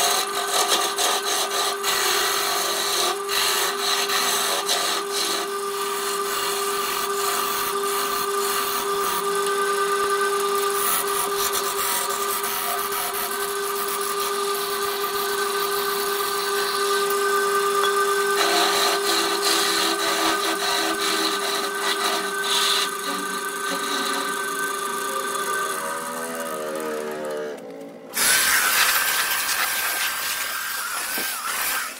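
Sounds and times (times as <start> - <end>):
wood lathe motor hum: 0.0 - 31.9
gouge scraping wood: 18.4 - 24.4.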